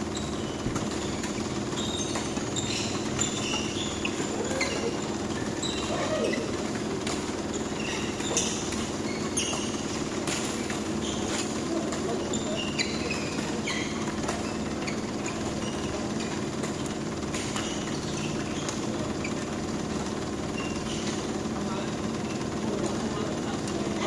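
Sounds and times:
court shoes squeaking: 0.0s - 24.0s
steady hum: 0.0s - 24.0s
racket striking shuttlecock: 8.0s - 12.1s, 16.2s - 18.9s.

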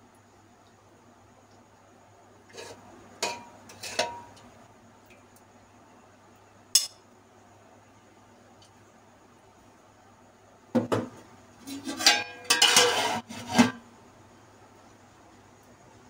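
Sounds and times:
spoon clinking against pot and bowl: 6.8s - 7.0s.

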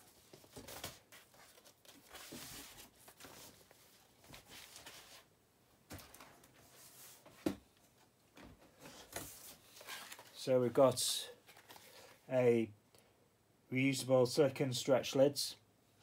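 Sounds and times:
rustling of packaging: 8.8s - 12.2s.

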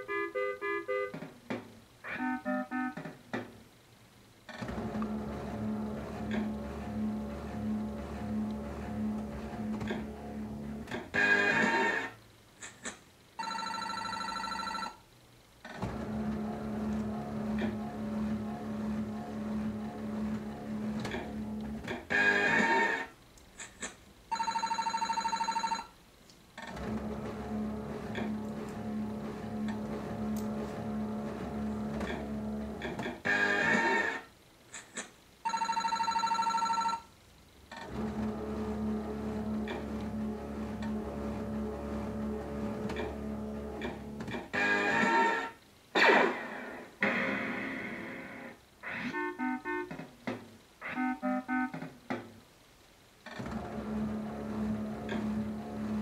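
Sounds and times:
slot machine reels humming: 4.6s - 12.2s, 13.4s - 15.0s, 26.7s - 34.2s.

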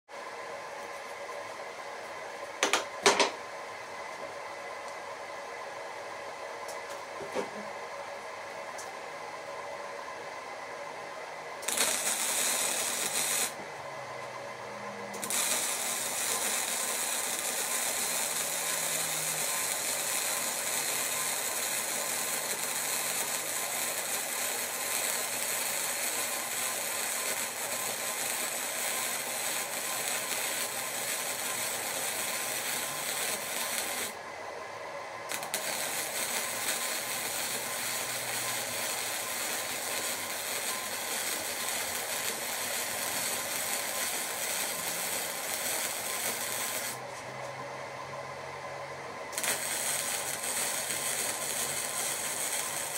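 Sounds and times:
welding arc spattering: 11.6s - 13.6s, 15.1s - 34.2s, 35.3s - 47.0s, 49.3s - 52.9s.

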